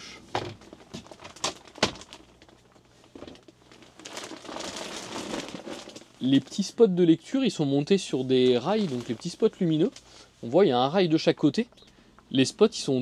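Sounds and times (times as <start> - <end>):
handling rustling: 8.1 - 10.1.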